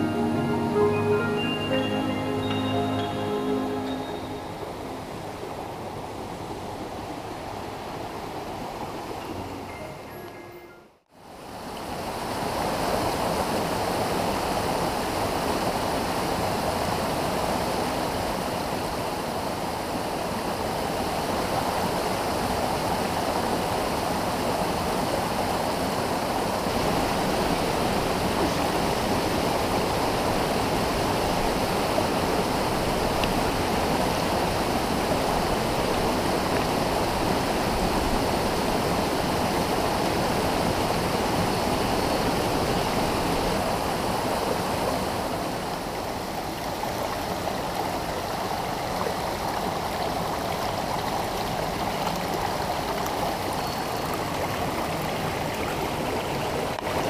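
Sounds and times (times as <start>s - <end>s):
stream rushing over rocks: 11.4s - 57.0s.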